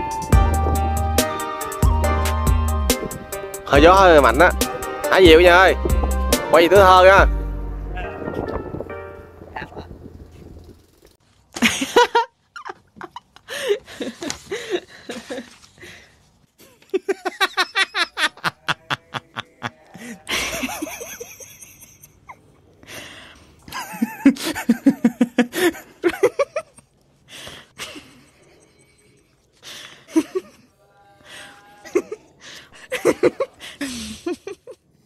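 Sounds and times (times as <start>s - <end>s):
person laughing heartily: 11.6s - 15.7s, 16.6s - 22.5s, 23.6s - 26.9s, 27.8s - 30.7s, 31.8s - 35.0s.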